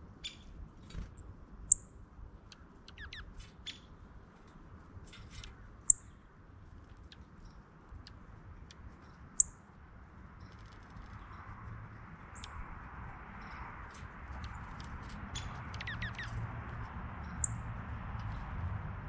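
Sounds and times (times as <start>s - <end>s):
wavering bird twitter: 0.2s - 0.5s, 2.5s - 3.9s, 12.3s - 12.6s, 14.3s - 16.4s
faint bird chirps: 1.7s - 3.9s.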